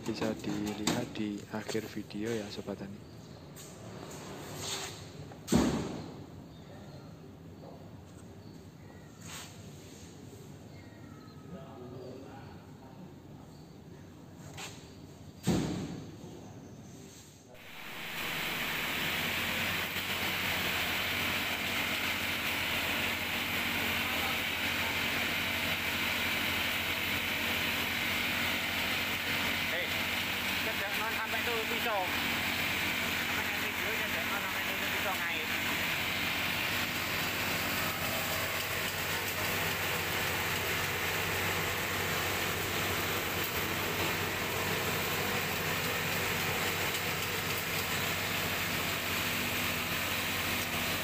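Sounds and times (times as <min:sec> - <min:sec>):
machinery hiss and rumble: 0:00.0 - 0:06.4, 0:17.1 - 0:51.0
mechanical hiss: 0:17.6 - 0:22.6
mechanical planting arms moving: 0:17.6 - 0:51.0
small engine humming: 0:17.6 - 0:51.0.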